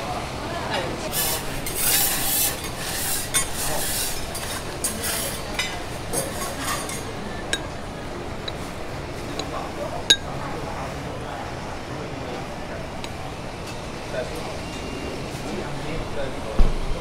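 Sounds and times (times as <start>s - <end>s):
metal spatulas scraping griddle: 1.1s - 7.1s.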